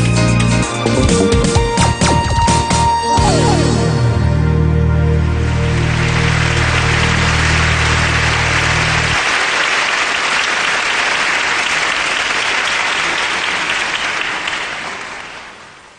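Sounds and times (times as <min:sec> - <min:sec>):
low held music chord: 0:03.0 - 0:09.2
audience applause: 0:05.3 - 0:15.9.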